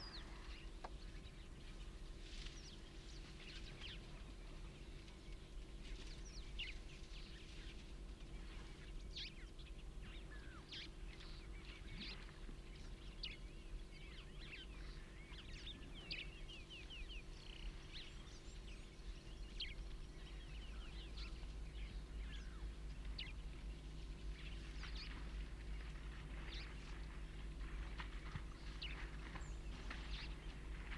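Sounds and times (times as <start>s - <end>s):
birds chirping and whistling: 0.0s - 1.7s, 8.9s - 30.9s
steady low hum: 0.0s - 30.9s.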